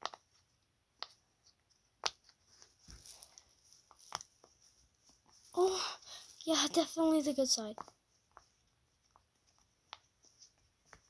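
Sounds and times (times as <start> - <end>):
fidget toy popping: 0.0 - 0.3, 2.0 - 2.3.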